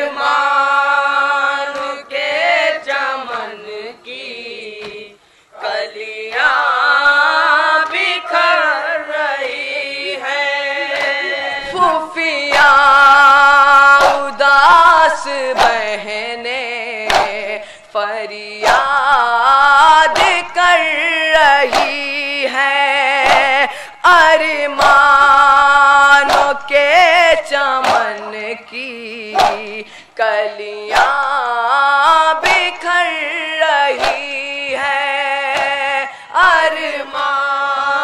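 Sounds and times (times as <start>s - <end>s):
man chanting a lament: 0.0s - 38.0s
chest beating slaps: 4.8s - 5.1s, 10.9s - 13.0s, 13.7s - 16.1s, 17.0s - 17.8s, 18.6s - 19.2s, 20.1s - 20.7s, 21.4s - 22.2s, 23.2s - 23.8s, 24.6s - 25.2s, 26.1s - 28.5s, 29.3s - 30.0s, 30.9s - 31.3s, 32.4s - 32.9s, 33.9s - 34.4s, 35.5s - 35.9s.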